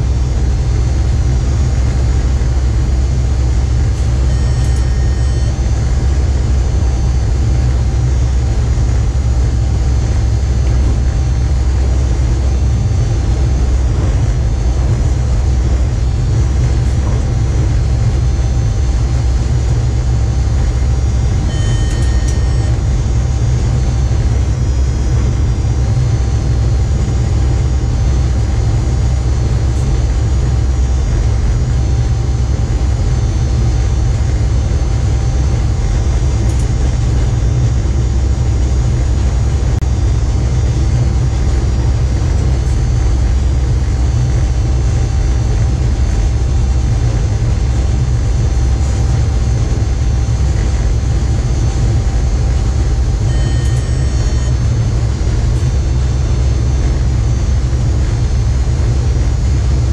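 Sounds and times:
faint steady hum: 0:00.0 - 0:59.9
train rumbling at speed: 0:00.0 - 0:59.9
two-note electronic beep: 0:03.9 - 0:06.3, 0:21.4 - 0:22.9, 0:53.2 - 0:54.9.

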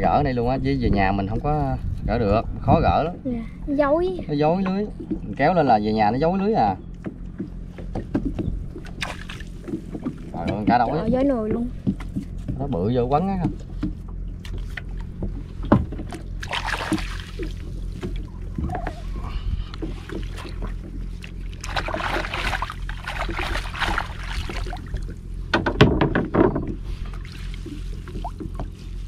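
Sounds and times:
boat engine idling: 0:00.0 - 0:29.0
knocks against boat: 0:07.0 - 0:19.0, 0:23.2 - 0:26.8
water splashing: 0:08.1 - 0:12.2, 0:14.2 - 0:25.4, 0:27.1 - 0:29.0.

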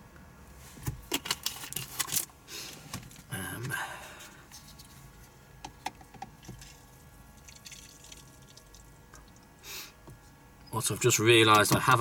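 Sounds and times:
water drips: 0:07.4 - 0:09.5.

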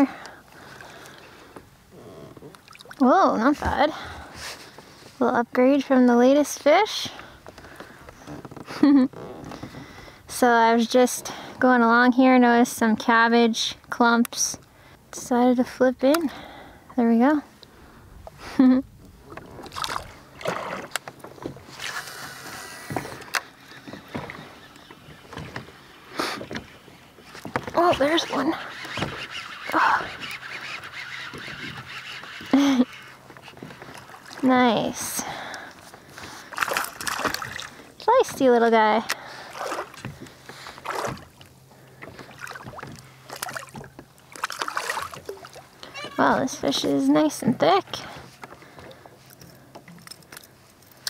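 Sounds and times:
water lapping against kayak: 0:00.0 - 0:05.2, 0:06.9 - 0:12.5, 0:16.2 - 0:50.8
fish splashing water: 0:19.3 - 0:21.0, 0:36.4 - 0:37.8, 0:39.2 - 0:45.8
fishing tackle clicks and knocks: 0:48.4 - 0:51.0.

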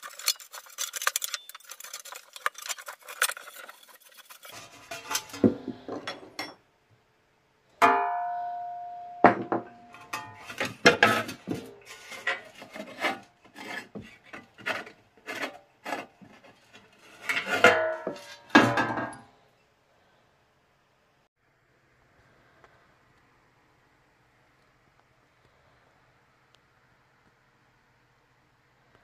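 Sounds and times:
scraping and clicking fitting: 0:00.0 - 0:05.4
metal lamp shade ringing: 0:07.8 - 0:10.7.

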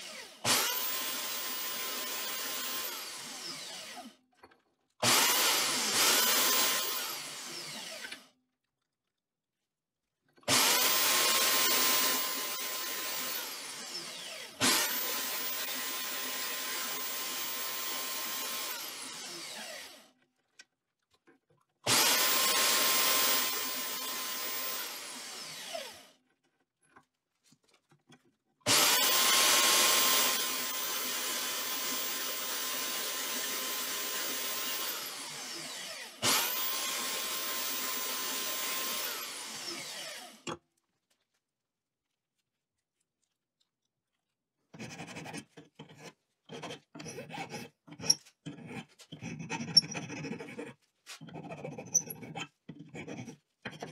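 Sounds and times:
reciprocating saw cutting aluminium: 0:28.6 - 0:40.5, 0:44.7 - 0:53.9.

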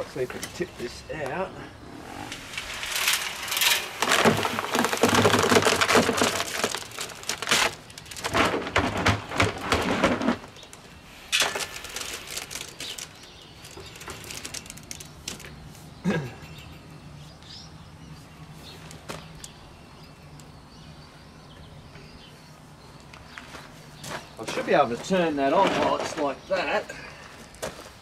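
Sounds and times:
scrapes and knocks of concrete: 0:02.4 - 0:10.8, 0:24.1 - 0:26.8.

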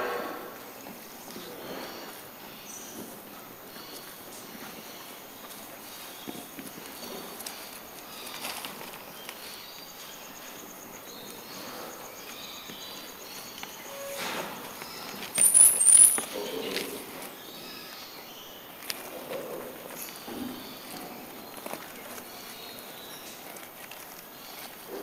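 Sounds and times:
armadillos scratching soil: 0:00.1 - 0:25.0
high squeaks: 0:13.7 - 0:16.9.

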